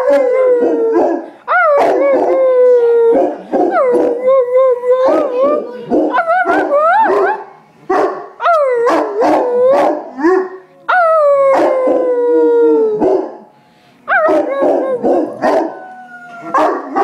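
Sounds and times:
dog howling: 0:14.1 - 0:17.0.

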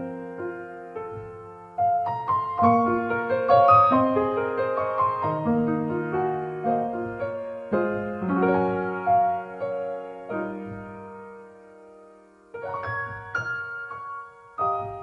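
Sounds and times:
solo piano music: 0:00.0 - 0:15.0.

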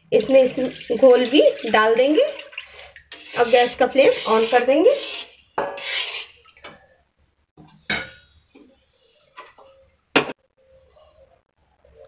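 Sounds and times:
metal spoon scraping iron pan: 0:03.1 - 0:06.4.

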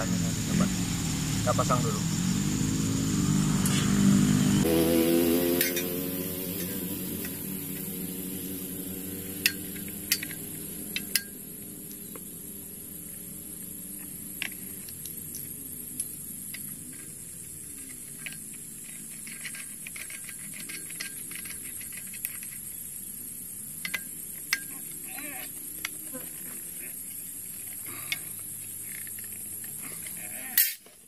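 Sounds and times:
low wavering hum: 0:00.0 - 0:18.6
high hiss: 0:00.0 - 0:20.0.

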